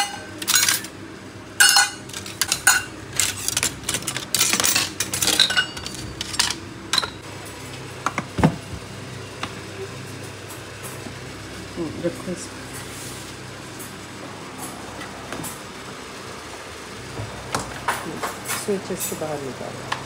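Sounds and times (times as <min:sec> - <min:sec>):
metal utensils clinking: 0:00.0 - 0:00.9, 0:01.6 - 0:07.2.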